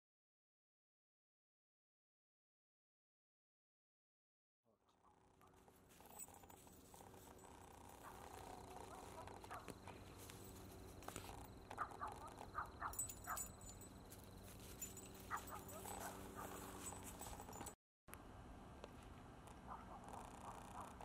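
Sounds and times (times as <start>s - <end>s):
dog making soft noises: 5.4s - 9.8s, 14.9s - 17.7s, 19.6s - 21.0s.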